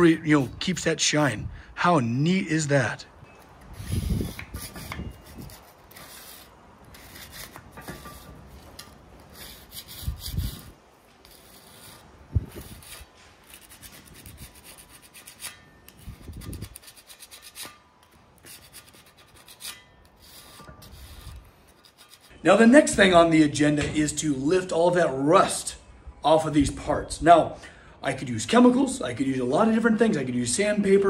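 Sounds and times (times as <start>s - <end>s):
abrasive scraping rusty steel: 1.9s - 23.1s.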